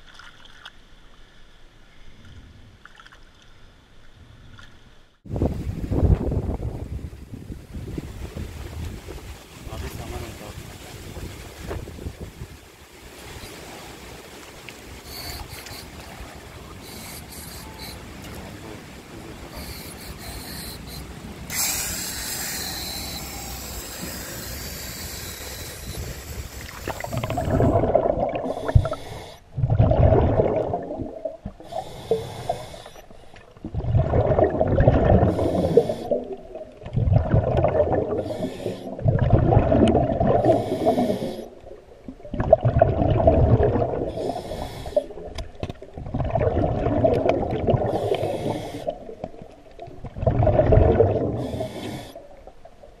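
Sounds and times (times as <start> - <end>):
regulator inhale hiss: 16.8 - 18.1, 19.5 - 27.4, 28.4 - 29.5, 31.6 - 33.4, 35.3 - 36.3, 38.1 - 39.0, 40.4 - 41.6, 44.1 - 45.2, 47.9 - 49.1, 51.4 - 52.3
bubbling exhaled air: 19.5 - 45.4, 46.0 - 52.3.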